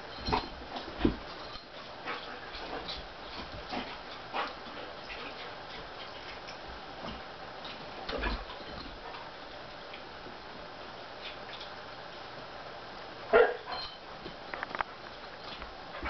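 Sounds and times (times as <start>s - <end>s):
dogs play-wrestling noises: 0.0s - 12.5s, 13.3s - 16.0s
clicks from mouthing and paws: 14.2s - 15.8s.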